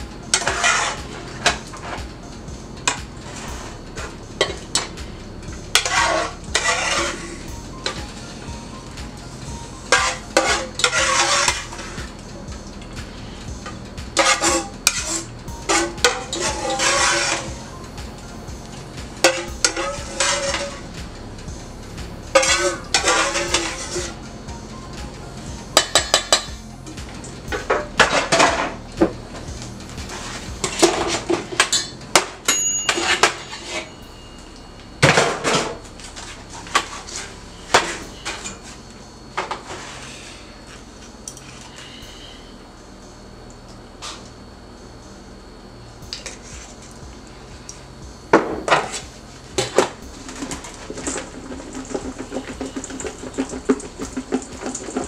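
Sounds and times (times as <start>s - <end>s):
metal utensil scraping a pan: 0.3s - 2.0s, 5.7s - 8.0s, 9.9s - 12.1s, 13.2s - 17.8s, 19.2s - 20.9s, 22.3s - 24.2s, 27.6s - 28.8s, 49.6s - 55.0s.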